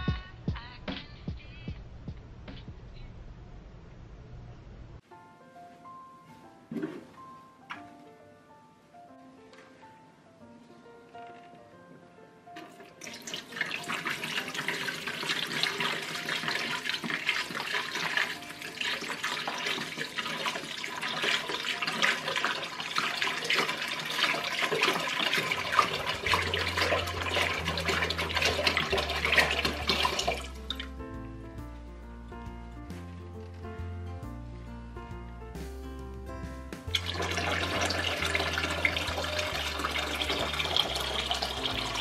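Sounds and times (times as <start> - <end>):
water pouring into tank: 12.6 - 30.9, 36.9 - 42.0.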